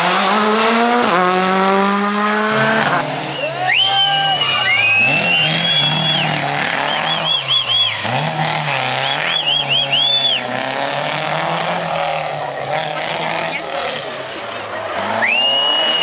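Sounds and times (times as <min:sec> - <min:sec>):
rally car engine revving: 0:00.0 - 0:16.0
tyre squeals: 0:02.5 - 0:10.5.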